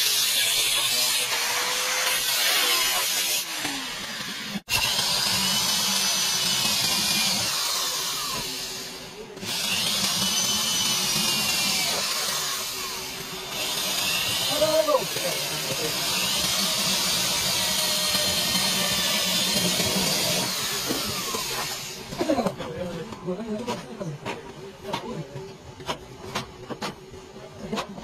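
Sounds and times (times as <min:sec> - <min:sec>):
electric drill drilling into metal: 0:00.0 - 0:22.1.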